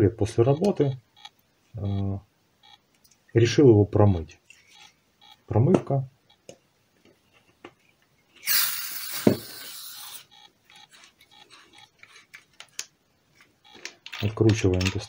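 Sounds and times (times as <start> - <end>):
aerosol spray hiss: 8.4 - 10.3
metal parts clicking: 11.9 - 15.0.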